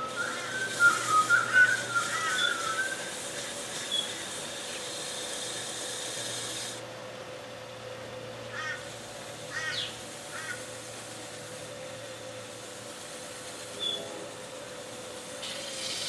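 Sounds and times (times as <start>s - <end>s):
cloth rubbing on spinning wood: 0.0s - 4.9s
lathe faint hum: 0.0s - 16.0s.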